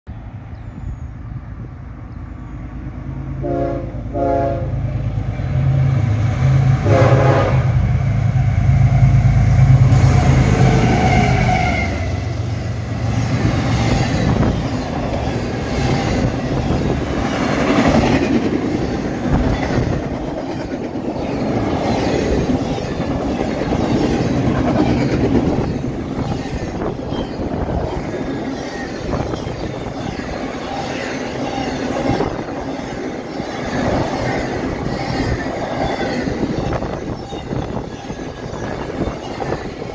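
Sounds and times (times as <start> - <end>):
train cars rushing past: 0.1 - 39.9
diesel locomotive rumble: 0.2 - 39.9
train horn blasts: 3.4 - 4.9, 6.8 - 7.8.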